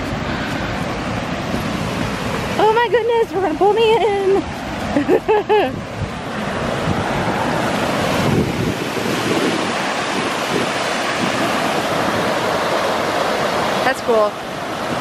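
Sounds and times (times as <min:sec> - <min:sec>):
rapids rushing over rocks: 0:00.0 - 0:15.0
wind rumbling on microphone: 0:00.0 - 0:15.0.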